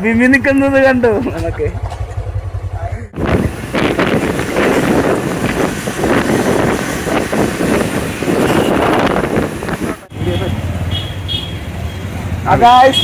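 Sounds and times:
motorcycle engine: 0.0s - 13.0s
road noise: 0.0s - 13.0s
wind buffeting microphone: 3.1s - 10.1s.

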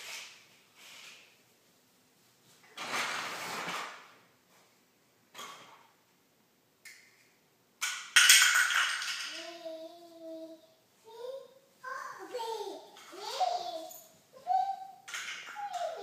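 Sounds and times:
plastic toys scraping and clattering: 2.7s - 4.1s, 15.1s - 16.0s.

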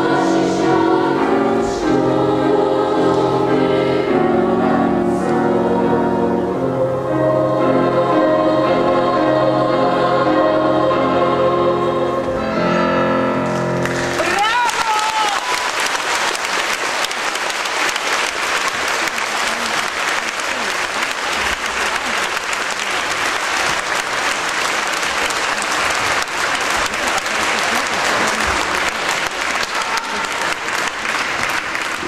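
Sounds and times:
large audience applauding: 13.4s - 32.0s.

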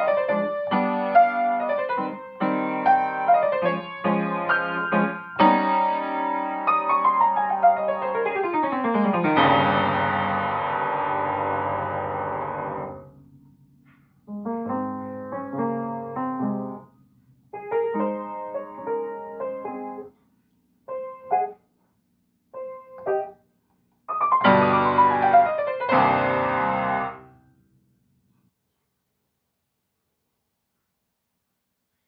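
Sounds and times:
upright piano playing: 0.0s - 13.4s, 14.3s - 20.1s, 22.5s - 23.4s, 24.1s - 27.4s.

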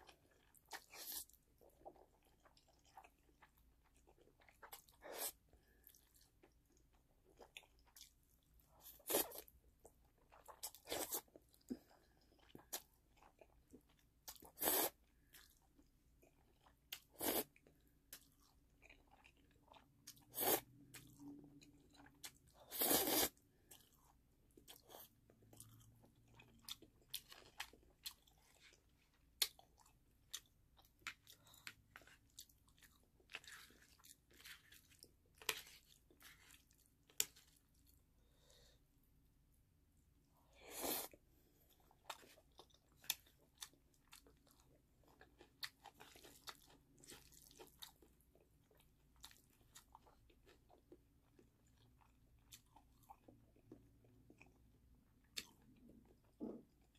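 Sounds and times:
soft chewing and mouth clicks: 0.0s - 56.9s
person slurping noodles: 22.7s - 23.4s.

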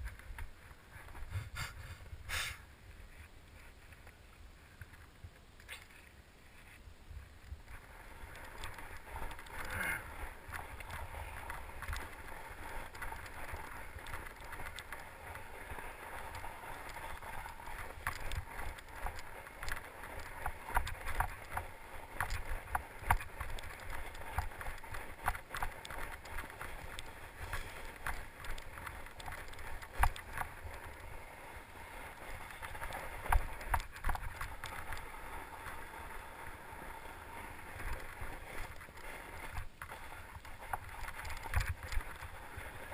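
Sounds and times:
bike tyres crunching on snow: 0.0s - 42.9s
bike clicks and rattles: 7.4s - 35.9s, 37.7s - 42.9s.

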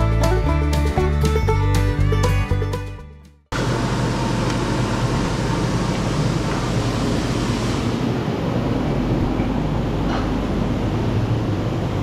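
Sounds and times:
sawmill engine droning: 3.6s - 8.1s.

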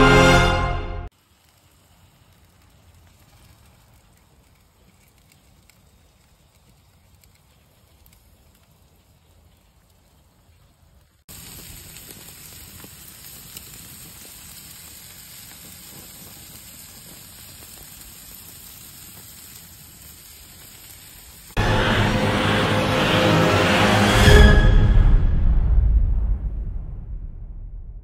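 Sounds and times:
fish sizzling on grill: 1.1s - 10.4s, 11.0s - 21.6s.

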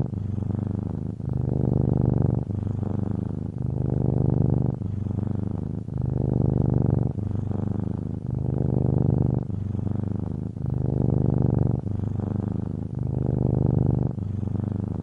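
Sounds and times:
cat purring: 0.0s - 15.0s.

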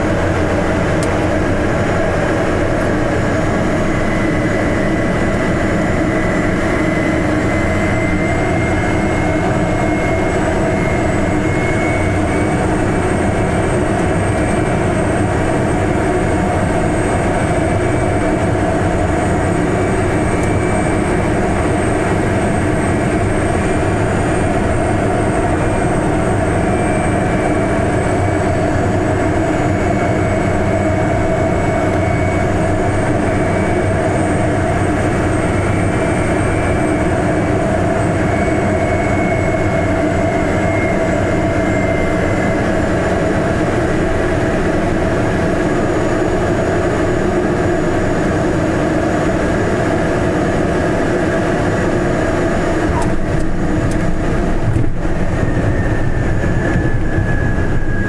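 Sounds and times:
propeller airplane engine droning: 0.0s - 58.0s
faint high whine: 0.1s - 45.0s.

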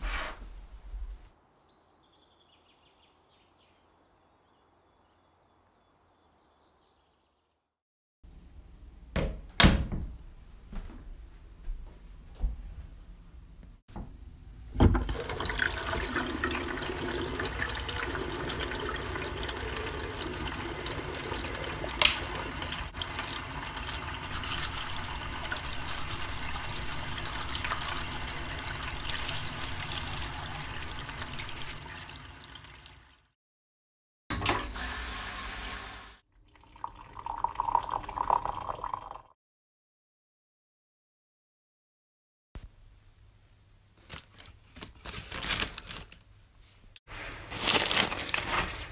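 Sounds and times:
tap water running into basin: 14.8s - 33.3s, 34.3s - 39.3s.

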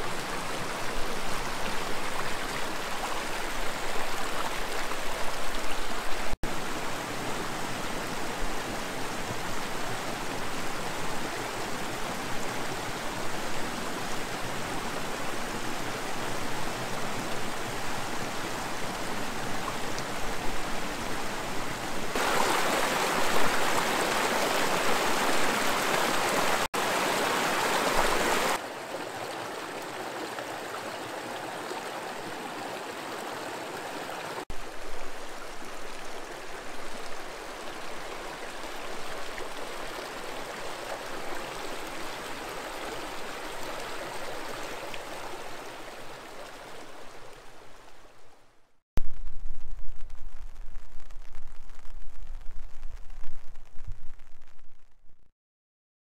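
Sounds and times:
creek rushing over rocks: 0.0s - 48.3s.

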